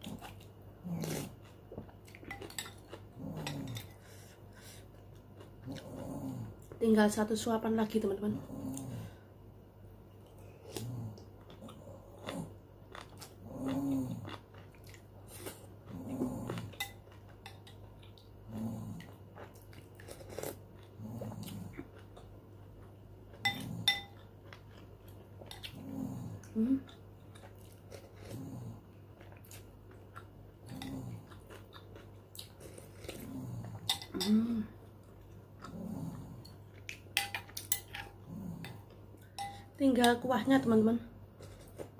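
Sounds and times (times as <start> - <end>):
spoon clinking on ceramic bowl: 23.4 - 24.2, 39.4 - 39.7.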